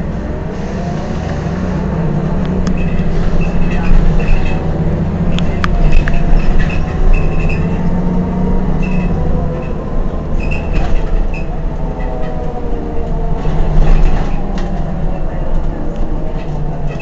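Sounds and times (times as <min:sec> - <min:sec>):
bus engine idling: 0:00.0 - 0:17.0.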